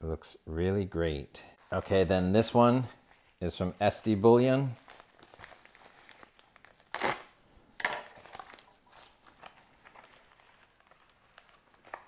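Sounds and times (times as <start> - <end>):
plastic mailer crinkling: 3.0 - 12.0.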